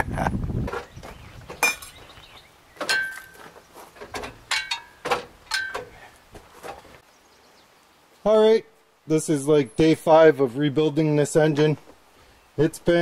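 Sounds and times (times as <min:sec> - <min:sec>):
metal clanks and clinks: 0:01.6 - 0:02.0, 0:02.8 - 0:06.1.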